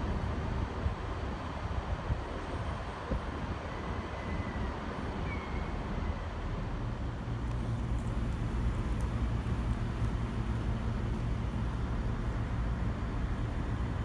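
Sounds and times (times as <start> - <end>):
diesel train engine rumble: 0.0 - 14.0
brief high squeal: 5.2 - 6.2.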